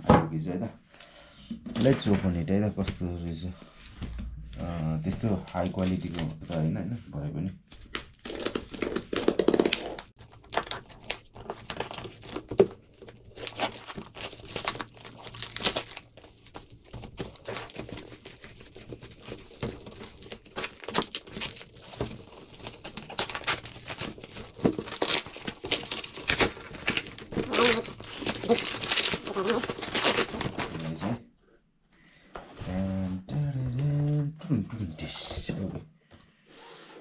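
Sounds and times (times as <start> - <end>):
cardboard and tape ripping: 7.9 - 31.2
plastic wrapping crinkling: 7.9 - 31.2.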